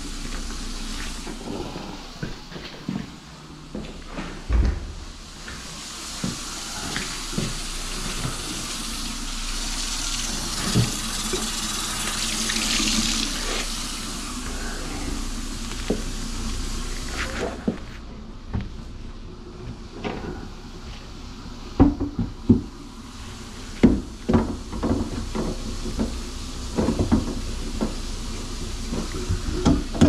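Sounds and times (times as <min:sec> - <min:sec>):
heavy thump: 0:04.4 - 0:05.2
faucet running into sink: 0:05.4 - 0:14.6.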